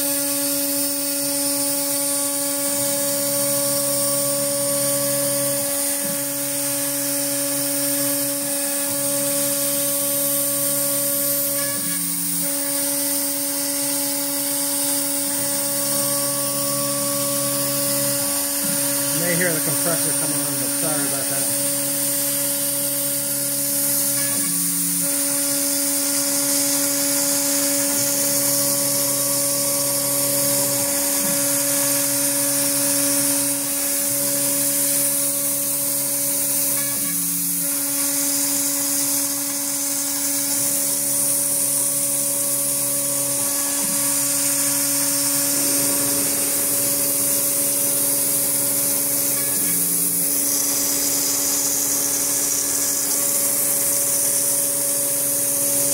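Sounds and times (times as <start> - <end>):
air compressor running: 0.0 - 55.9
cnc router spindle whine: 0.0 - 55.9.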